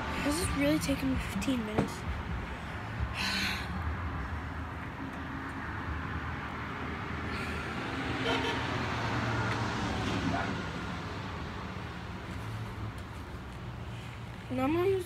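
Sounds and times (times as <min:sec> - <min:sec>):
road traffic hum: 0:00.0 - 0:15.0.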